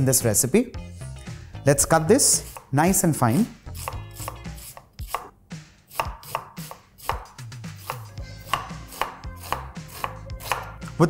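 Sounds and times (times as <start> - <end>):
knife chopping on wooden board: 2.4 - 2.7, 3.8 - 5.3, 5.9 - 11.0.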